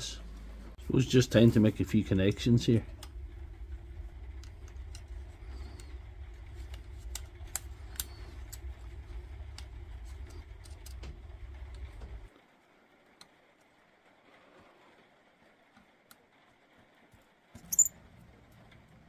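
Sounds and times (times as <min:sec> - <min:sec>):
steady low rumble: 0:00.0 - 0:12.3.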